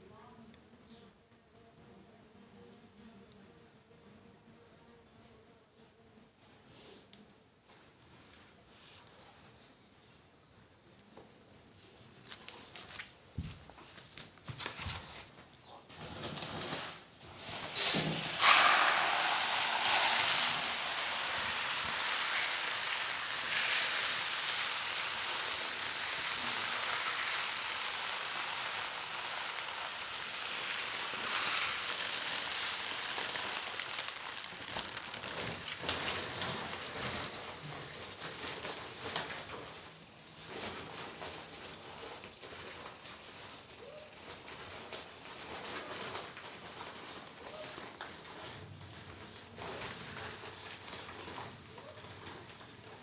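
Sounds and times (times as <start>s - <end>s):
rice grains pouring: 17.4s - 39.7s.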